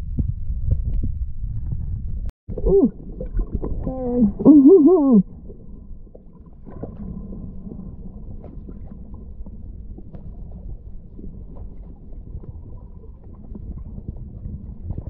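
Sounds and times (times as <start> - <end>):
low rumbling water noise: 0.0 - 15.0
muffled voice underwater: 2.5 - 5.4.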